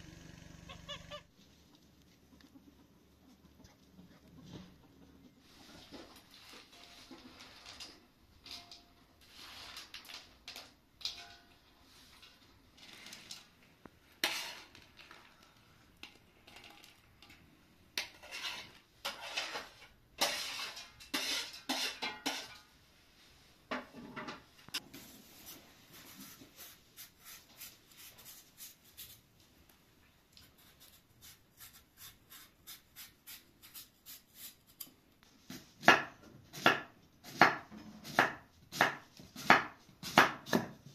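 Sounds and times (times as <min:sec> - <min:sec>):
metal spoon scraping and clinking: 0:18.0 - 0:22.6
knife scraping radish: 0:18.1 - 0:22.4, 0:25.4 - 0:29.2, 0:30.4 - 0:40.7.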